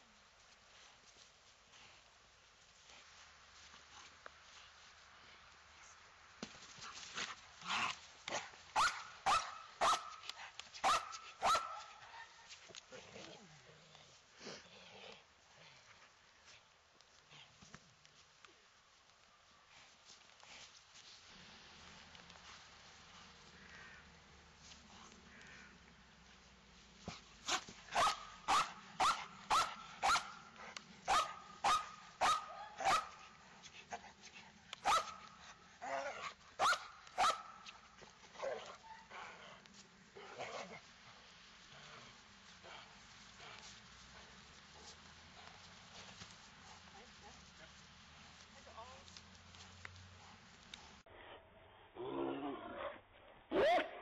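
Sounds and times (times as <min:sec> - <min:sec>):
rough dog sound: 0:06.4 - 0:18.3, 0:24.6 - 0:54.0
dog barking sharply: 0:08.8 - 0:10.2, 0:10.8 - 0:11.9, 0:27.9 - 0:30.3, 0:31.1 - 0:33.1, 0:36.6 - 0:37.6.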